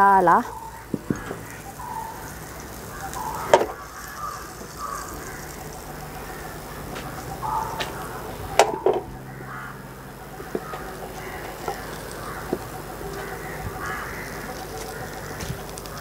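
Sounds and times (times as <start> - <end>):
butter sizzling in a pan: 1.0 - 7.4.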